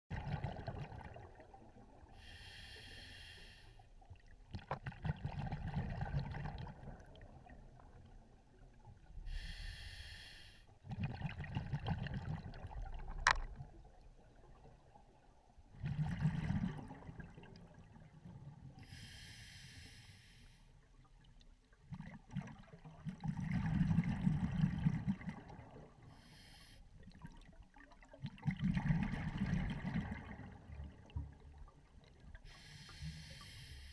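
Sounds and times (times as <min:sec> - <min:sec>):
exhaled bubbles: 0:00.1 - 0:02.4, 0:04.5 - 0:07.7, 0:10.8 - 0:13.4, 0:15.8 - 0:18.1, 0:21.9 - 0:26.1, 0:27.1 - 0:32.8
regulator hissing inhale: 0:02.2 - 0:03.9, 0:09.3 - 0:10.7, 0:18.8 - 0:20.7, 0:26.2 - 0:26.9, 0:32.5 - 0:33.9.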